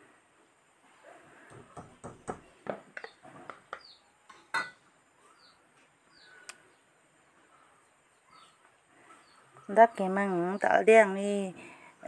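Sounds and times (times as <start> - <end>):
faint bird chirps: 3.0 - 11.1.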